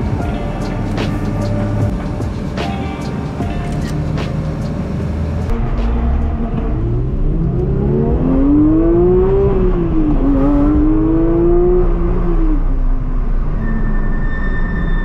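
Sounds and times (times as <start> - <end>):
car engine accelerating from cabin: 3.8 - 13.7.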